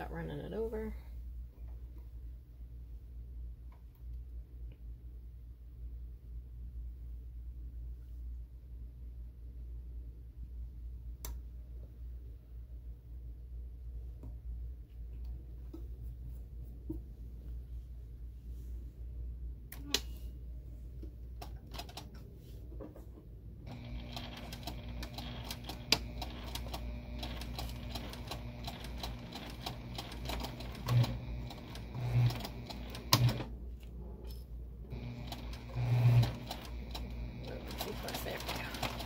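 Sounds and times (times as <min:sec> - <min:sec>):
sewing machine stitching: 0:23.7 - 0:33.5, 0:34.9 - 0:39.0.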